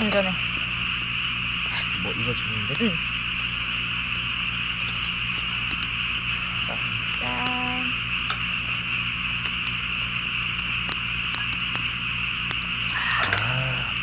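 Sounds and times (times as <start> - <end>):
campfire crackles: 0.0 - 14.0
frogs chorus: 6.2 - 9.4, 10.3 - 14.0.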